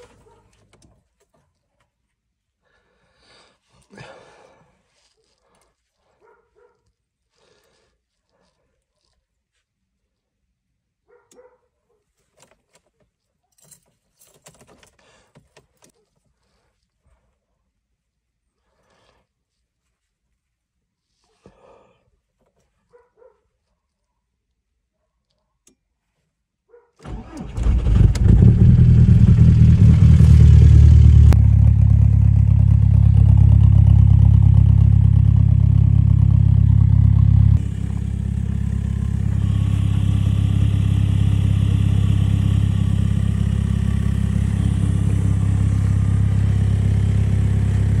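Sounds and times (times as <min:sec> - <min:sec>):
diesel engine starting: 0:27.0 - 0:48.0
diesel engine idling: 0:27.1 - 0:48.0.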